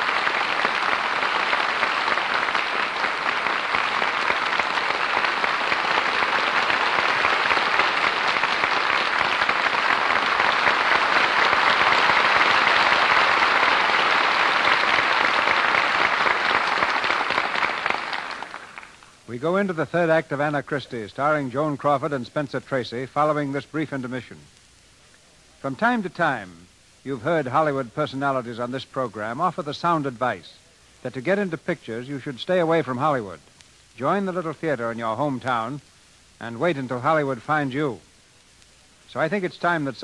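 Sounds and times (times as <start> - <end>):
audience applauding: 0.0 - 19.1.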